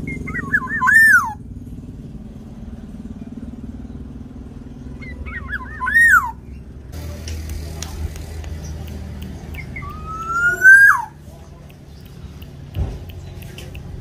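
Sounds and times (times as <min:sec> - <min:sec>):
bird singing whistled phrases: 0:00.0 - 0:01.4, 0:05.0 - 0:06.7, 0:09.6 - 0:11.2
low motor hum: 0:00.0 - 0:14.0.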